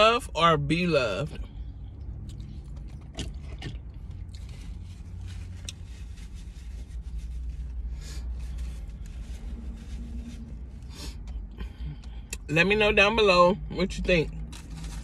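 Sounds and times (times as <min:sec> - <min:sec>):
low rumble inside car: 0:00.0 - 0:15.0
tortilla wrap rustling: 0:02.2 - 0:11.4, 0:14.4 - 0:15.0.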